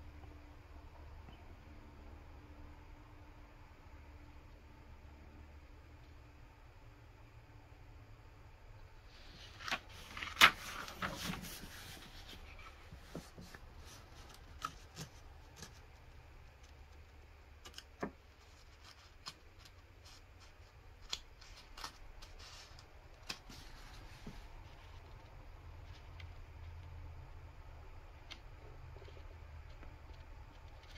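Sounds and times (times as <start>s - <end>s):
paper pages turning: 9.1s - 17.0s, 17.6s - 25.2s
paper snap: 9.5s - 11.3s, 21.0s - 22.4s.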